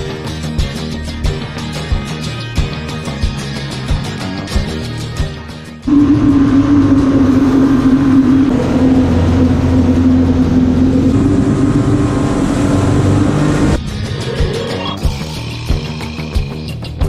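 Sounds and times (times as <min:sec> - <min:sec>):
water rushing: 0:05.9 - 0:13.8
boat motor running: 0:05.9 - 0:13.9.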